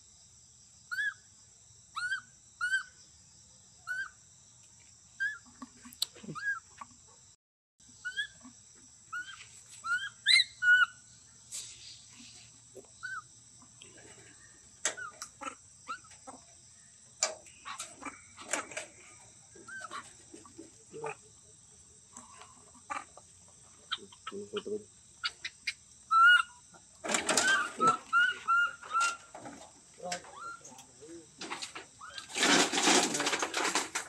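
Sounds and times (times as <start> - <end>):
insects droning: 0.0 - 34.0
baby monkey whimpering coo calls: 6.2 - 6.6, 8.0 - 8.4, 9.1 - 11.0, 23.9 - 24.6, 26.1 - 26.6, 27.4 - 29.2, 30.3 - 30.7.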